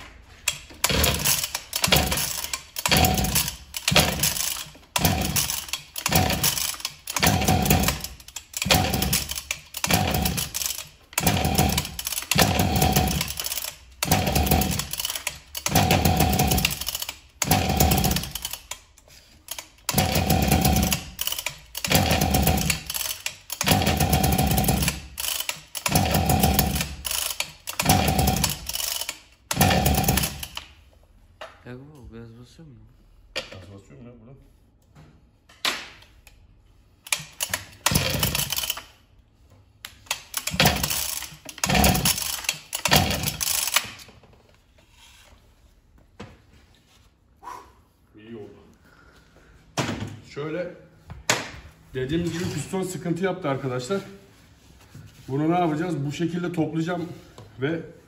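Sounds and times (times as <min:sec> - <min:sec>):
recoil starter cranking: 0:00.4 - 0:30.7, 0:37.0 - 0:39.0, 0:39.9 - 0:44.1.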